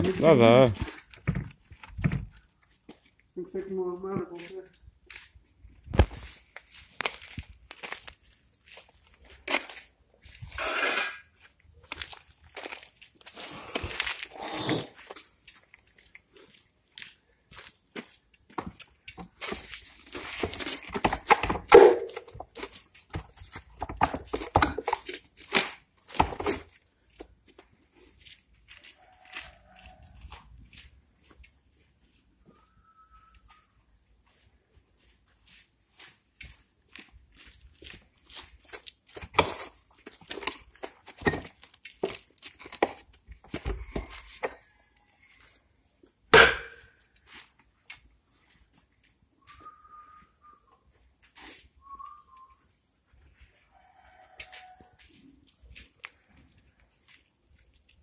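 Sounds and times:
axe striking wood: 0:21.0 - 0:22.3, 0:46.3 - 0:46.9
wood fibres snapping and tearing: 0:25.0 - 0:26.3.

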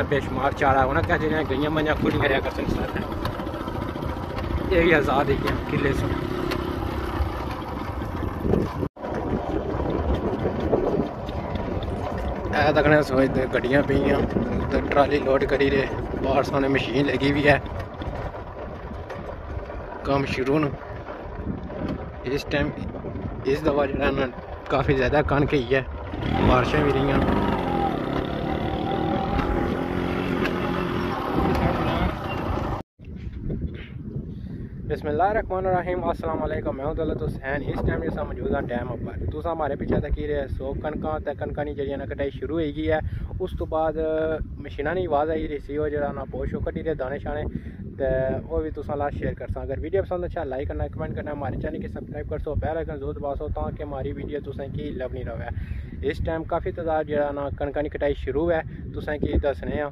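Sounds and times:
engine hum: 0:00.0 - 0:32.9
wind buffeting microphone: 0:00.0 - 0:59.9
threshing machine running: 0:00.6 - 0:32.8.

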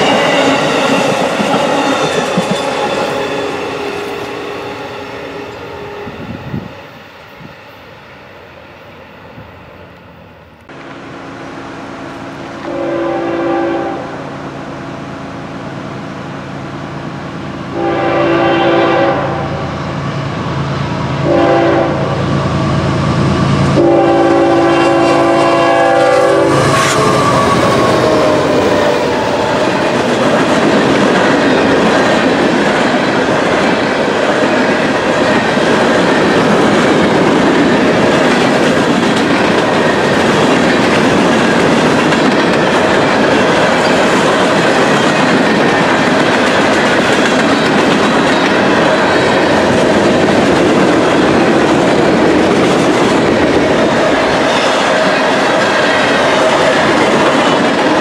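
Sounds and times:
train wheels rumbling on rails: 0:00.0 - 0:58.0
train horn blasts: 0:12.5 - 0:14.3, 0:17.7 - 0:19.8, 0:21.2 - 0:22.8, 0:23.6 - 0:29.4.

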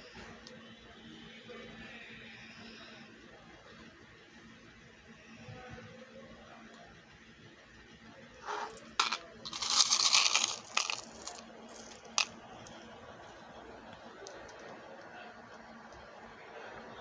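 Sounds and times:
metal charms jingling: 0:08.7 - 0:12.4.

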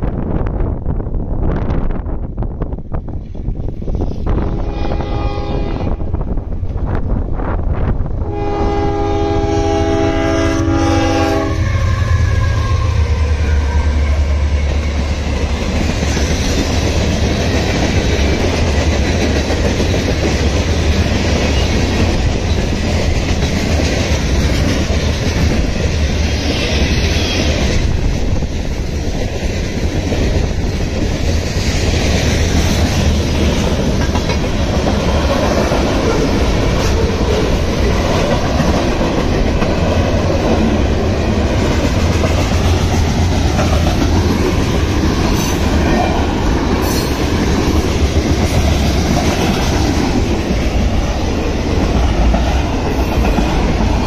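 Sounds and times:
freight train rumbling past: 0:00.0 - 0:54.0
train wheel clacks: 0:14.4 - 0:54.0.

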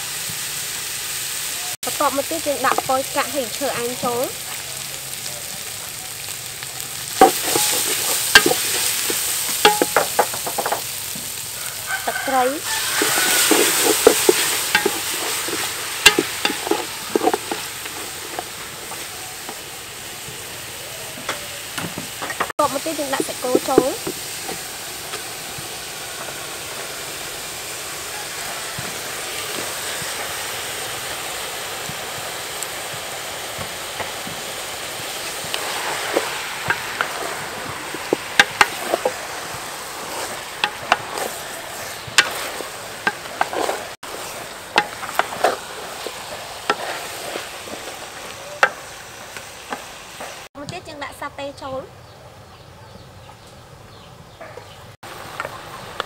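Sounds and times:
meat sizzling in a hot pot: 0:00.0 - 0:51.8, 0:55.0 - 0:56.0
wooden spoon stirring in a pot: 0:07.2 - 0:19.7, 0:22.3 - 0:25.2, 0:32.9 - 0:50.4.

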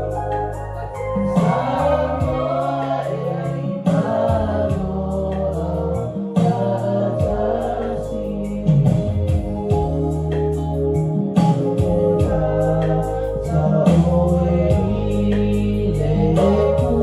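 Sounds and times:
woman singing into microphone: 0:00.0 - 0:09.9
electronic keyboard chords: 0:00.0 - 0:17.0
group singing: 0:00.8 - 0:09.8, 0:11.4 - 0:17.0.

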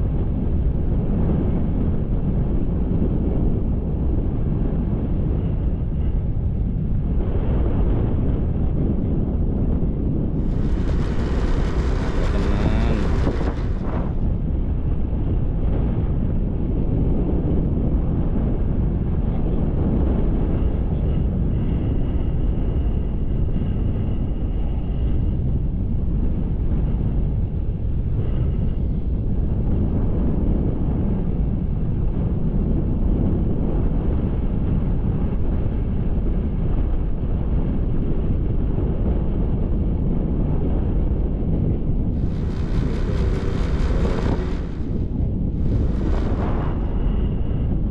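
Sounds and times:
wind rumble on microphone: 0:00.0 - 0:47.9
motorcycle engine and tyre noise: 0:10.4 - 0:14.5, 0:42.2 - 0:47.5.

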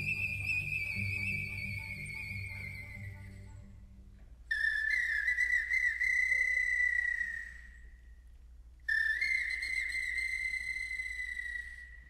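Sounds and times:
hand whistle warbling trills: 0:00.0 - 0:03.5, 0:04.5 - 0:07.9, 0:08.9 - 0:12.0.

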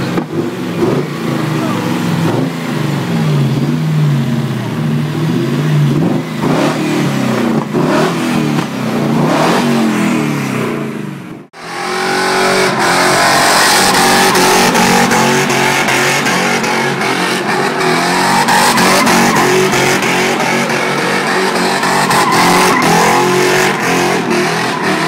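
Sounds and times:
engine revving: 0:00.0 - 0:25.0
tyres spinning in a burnout: 0:11.6 - 0:25.0.

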